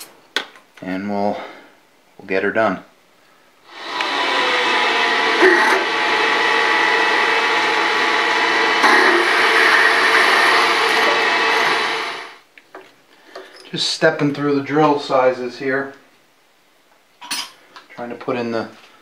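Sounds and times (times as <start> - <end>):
drill cutting metal: 3.7 - 12.4
milling machine motor whine: 3.7 - 12.4.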